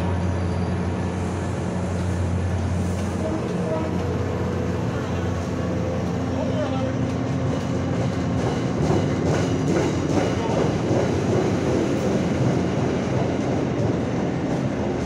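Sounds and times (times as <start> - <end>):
train coaches rumbling past: 0.0 - 15.0.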